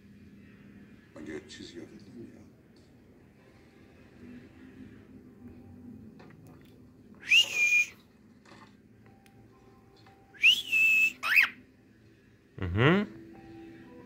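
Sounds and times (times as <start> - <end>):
cockatiel whistling: 7.2 - 8.0, 10.4 - 11.6.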